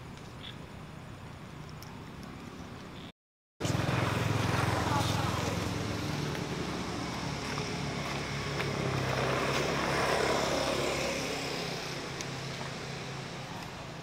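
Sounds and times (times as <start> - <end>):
passing engine hum: 3.6 - 14.0.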